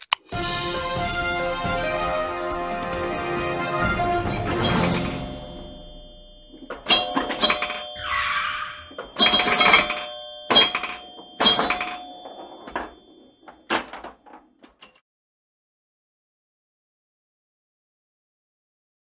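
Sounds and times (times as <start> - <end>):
sharp hits with bell-like tones: 4.2 - 13.5.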